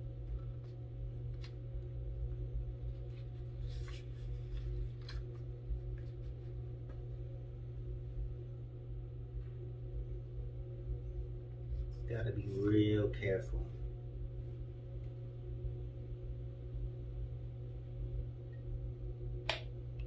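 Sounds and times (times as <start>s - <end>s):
steady low hum: 0.0s - 20.0s
paper rustle: 2.8s - 6.5s.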